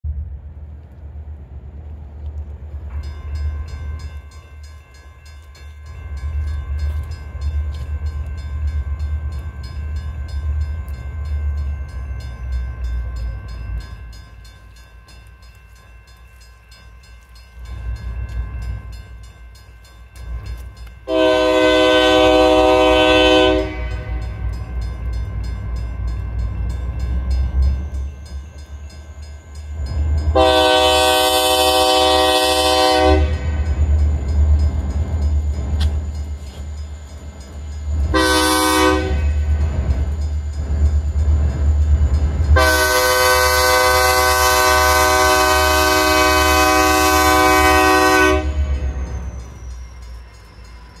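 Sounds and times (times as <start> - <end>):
locomotive air horn blasts: 21.1 - 24.4, 30.3 - 33.5, 38.1 - 39.4, 42.6 - 48.9.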